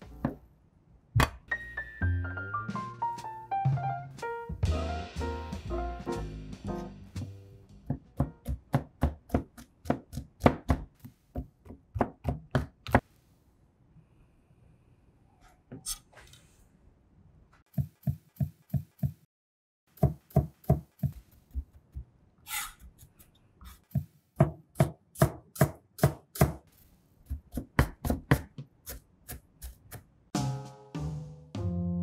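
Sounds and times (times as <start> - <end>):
knife chopping on cutting board: 7.9 - 13.0, 20.0 - 21.2, 23.9 - 26.6, 27.3 - 30.1
knife blade scraping board: 22.5 - 23.8.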